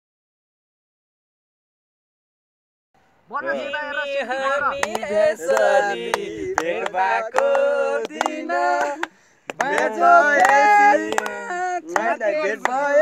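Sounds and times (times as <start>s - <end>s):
group of people singing: 3.4s - 13.0s
hand claps: 4.8s - 13.0s.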